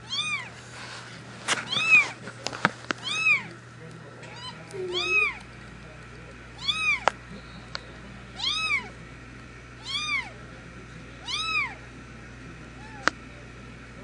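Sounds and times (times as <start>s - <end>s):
cat mewing: 0.0s - 0.5s, 1.7s - 2.2s, 3.0s - 3.5s, 4.3s - 5.4s, 6.6s - 7.1s, 8.4s - 9.0s, 9.8s - 10.4s, 11.2s - 11.8s, 12.8s - 13.1s.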